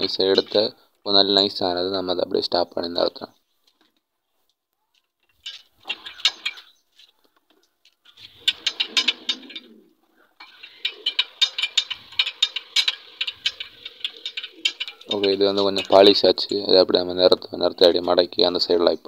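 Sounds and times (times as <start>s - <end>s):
hand-cranked roller gears clattering: 5.2s - 6.8s, 8.1s - 9.8s, 10.4s - 18.2s.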